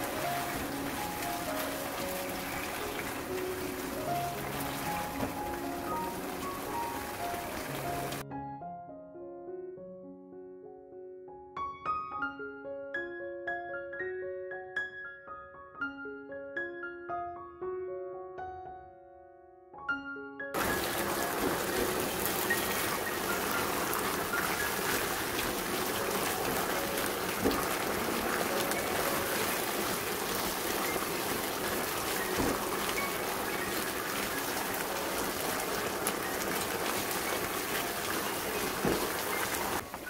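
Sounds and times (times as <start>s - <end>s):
mushrooms sizzling in a wok: 0.0s - 8.2s, 20.6s - 40.0s.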